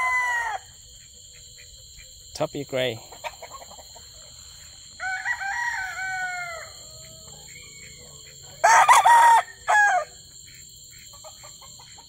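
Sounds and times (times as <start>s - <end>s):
rooster crowing: 0.0s - 0.8s, 4.8s - 10.2s.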